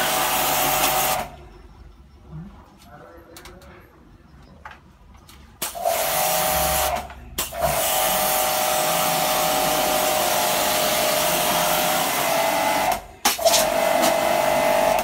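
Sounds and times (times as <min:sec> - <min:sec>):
pressure washer motor whine: 0:00.0 - 0:01.3, 0:07.8 - 0:13.0, 0:13.6 - 0:15.0.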